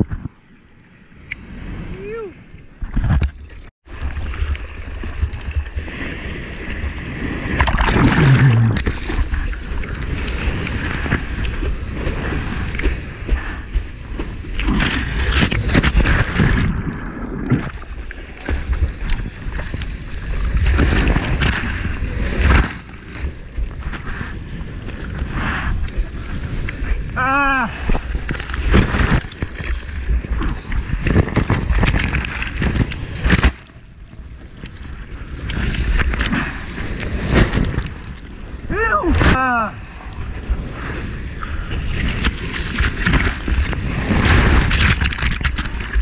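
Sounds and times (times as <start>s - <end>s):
ocean water rushing and splashing: 0.0s - 46.0s
wind buffeting microphone: 4.2s - 46.0s.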